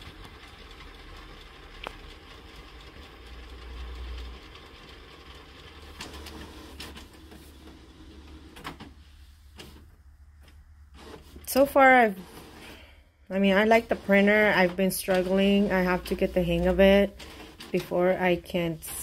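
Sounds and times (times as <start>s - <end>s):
printer mechanism whirring: 0.0s - 19.0s
printer clicks: 13.8s - 16.3s.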